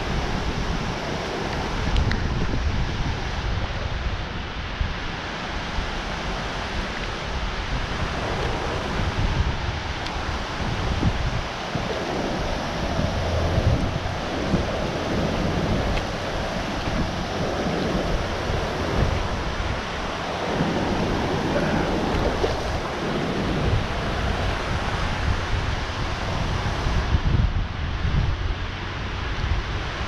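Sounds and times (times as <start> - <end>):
water rushing from spillway: 0.0 - 30.0
wind buffeting microphone: 0.0 - 30.0.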